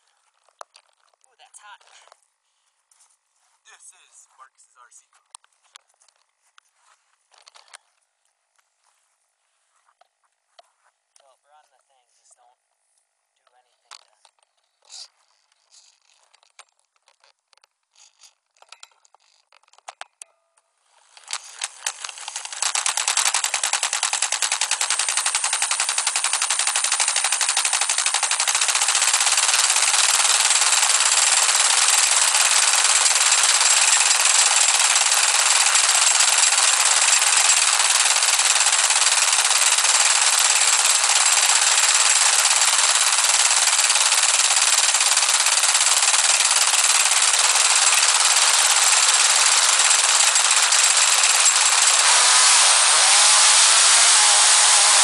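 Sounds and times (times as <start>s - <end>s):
small two-stroke engine idling: 21.2s - 55.0s.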